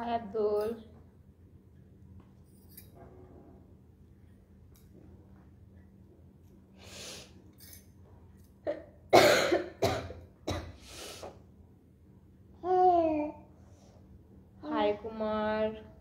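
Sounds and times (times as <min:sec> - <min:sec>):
breathing: 0:06.8 - 0:07.4
woman coughing: 0:08.7 - 0:10.8.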